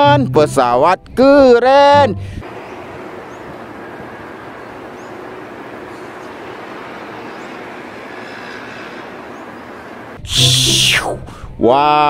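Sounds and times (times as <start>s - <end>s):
jet airliner engines rushing: 2.4s - 11.2s.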